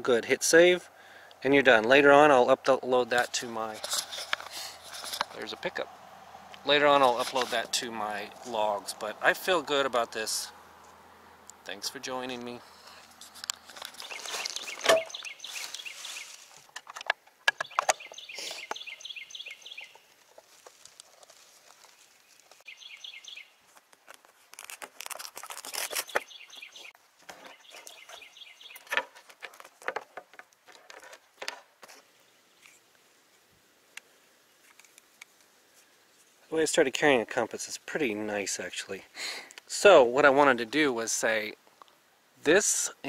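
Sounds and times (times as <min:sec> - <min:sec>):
songbird calling: 0:13.8 - 0:16.4, 0:17.5 - 0:20.1, 0:22.6 - 0:23.6, 0:25.9 - 0:29.0.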